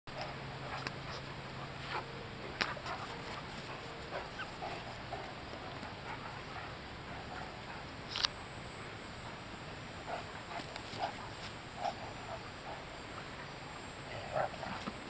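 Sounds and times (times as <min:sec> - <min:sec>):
dogs scuffling: 0:10.0 - 0:12.5.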